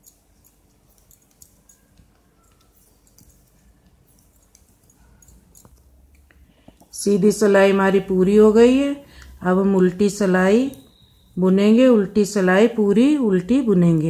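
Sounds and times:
knitting needles clicking: 0.0 - 7.0.

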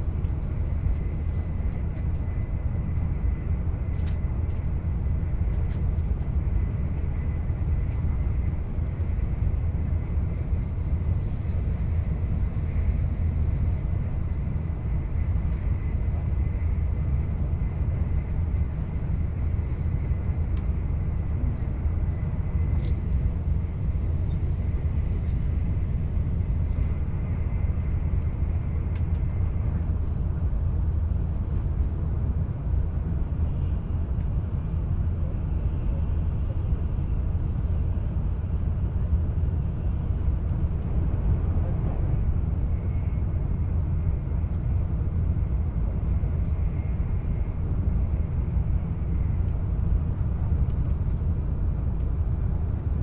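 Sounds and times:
train rumble inside cabin: 0.0 - 53.0.

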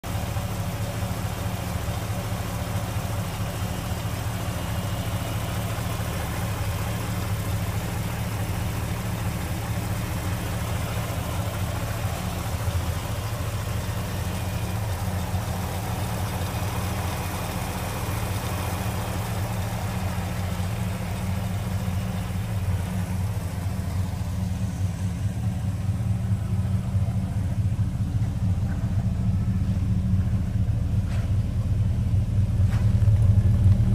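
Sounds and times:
car engine idling: 0.0 - 33.9.

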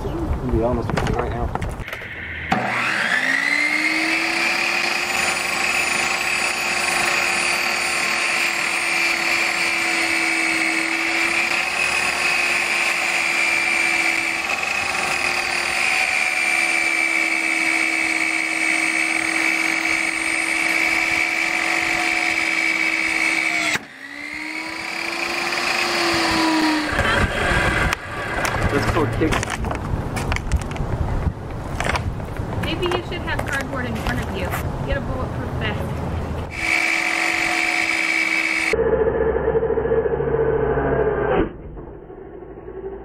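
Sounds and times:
table saw running: 1.8 - 29.2, 36.5 - 41.3.

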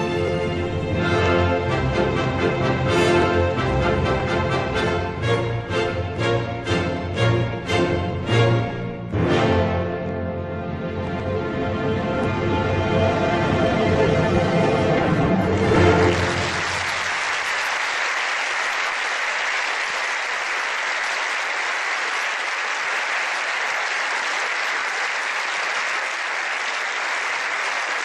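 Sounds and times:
music: 0.0 - 17.0
audience applauding: 15.4 - 28.0.

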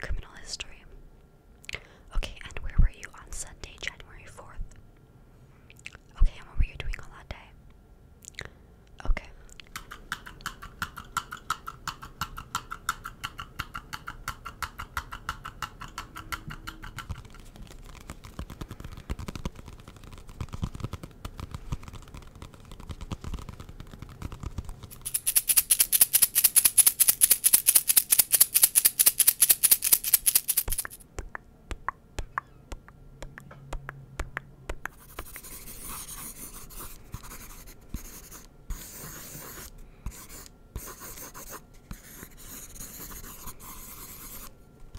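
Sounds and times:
fast tapping: 9.8 - 32.5
loud fast scratching: 17.0 - 31.0
pencil scratching on paper: 34.9 - 44.5.

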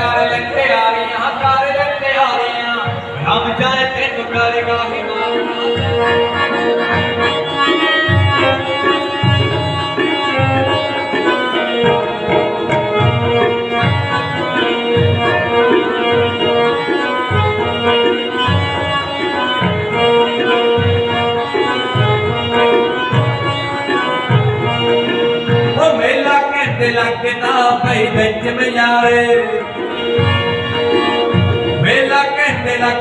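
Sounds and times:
harmonium sustained reedy notes: 0.0 - 33.0
tabla steady beat: 0.0 - 33.0.

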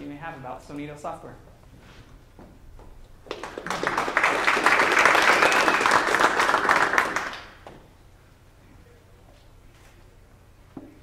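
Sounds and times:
small audience applauding: 3.2 - 7.8.

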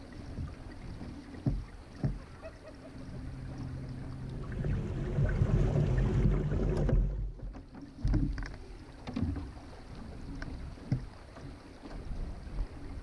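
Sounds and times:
water splashing against hull: 0.0 - 13.0
boat knocks: 0.3 - 2.4, 4.6 - 9.8
wind rumbling on microphone: 3.4 - 11.2.

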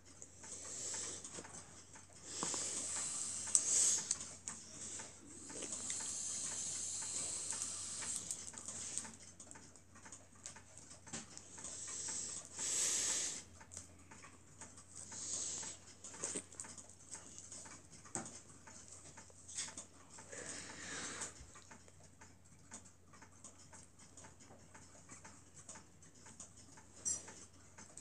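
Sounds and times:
small motor ticking: 0.4 - 10.7
hiss: 2.4 - 4.1, 5.6 - 8.3, 12.0 - 13.4.

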